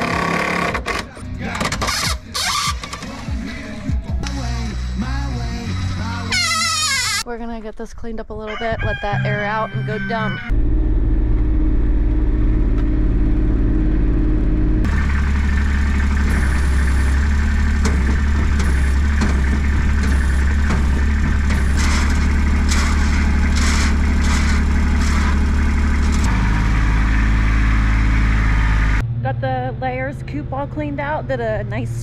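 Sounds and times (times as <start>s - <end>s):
vehicle engine running: 9.1s - 32.0s
sharp rattles: 14.9s - 28.0s.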